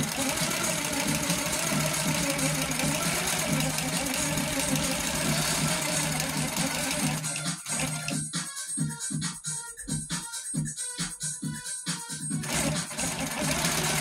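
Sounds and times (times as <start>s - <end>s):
quilting machine stitching: 0.0s - 8.2s, 12.4s - 14.0s.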